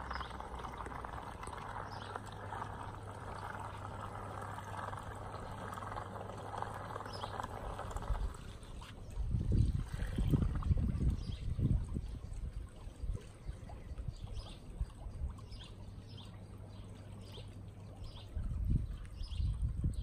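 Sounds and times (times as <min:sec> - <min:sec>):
low machine hum: 0:00.0 - 0:20.0
low uneven rumbling: 0:00.0 - 0:20.0
water splashing and trickling: 0:00.0 - 0:20.0.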